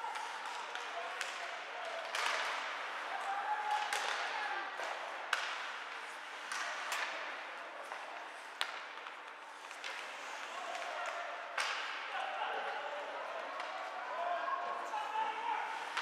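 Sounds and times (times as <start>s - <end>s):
hockey sticks hitting puck: 0.0s - 16.0s
skates scraping on ice: 4.9s - 11.2s.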